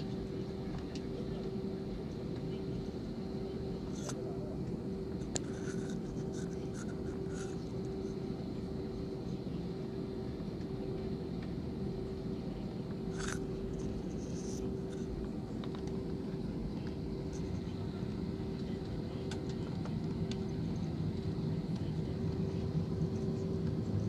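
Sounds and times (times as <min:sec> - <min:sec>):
jet engines idling hum: 0:00.0 - 0:24.0
scratches and rustles near microphone: 0:03.8 - 0:04.3, 0:05.2 - 0:08.1, 0:13.1 - 0:16.1.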